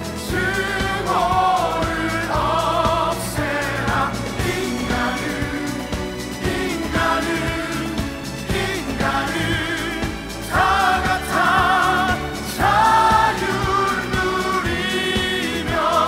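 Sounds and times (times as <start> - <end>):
orchestral backing: 0.0 - 16.0
singers holding long notes: 0.0 - 16.0.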